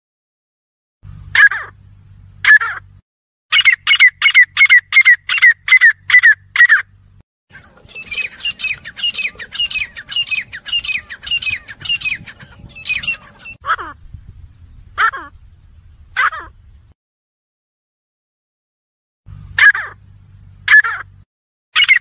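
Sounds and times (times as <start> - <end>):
francolins calling: 3.5 - 14.2, 21.8 - 22.0.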